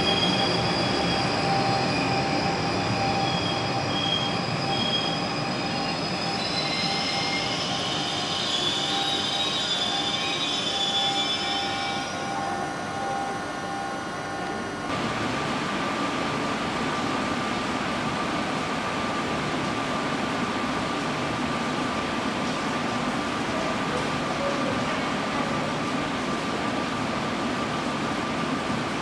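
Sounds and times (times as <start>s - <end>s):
train wheels squealing on rails: 0.0s - 14.8s
electric train whine: 0.0s - 18.6s.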